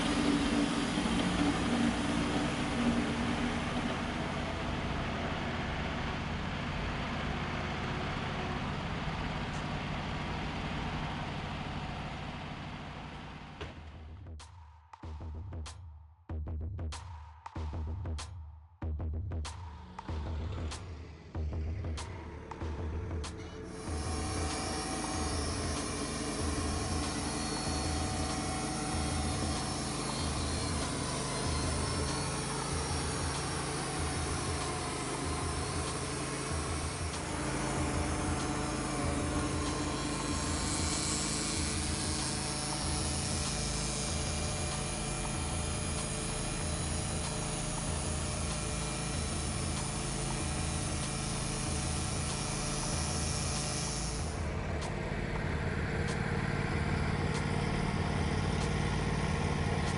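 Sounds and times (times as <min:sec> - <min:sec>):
engine hum: 0:00.0 - 0:14.4, 0:18.9 - 0:59.9
bandsaw blade cutting wood: 0:23.7 - 0:55.0.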